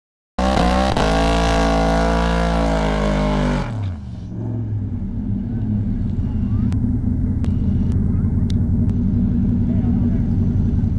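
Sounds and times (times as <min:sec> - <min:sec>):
truck engine revving high: 0:00.4 - 0:10.9.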